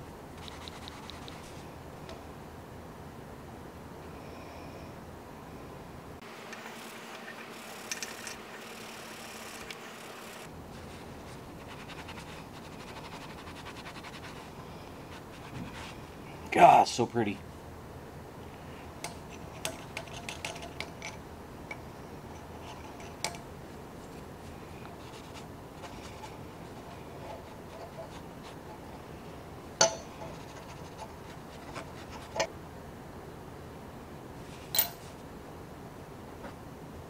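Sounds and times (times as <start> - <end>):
metal parts clicking on workbench: 19.0 - 21.8, 34.7 - 35.1.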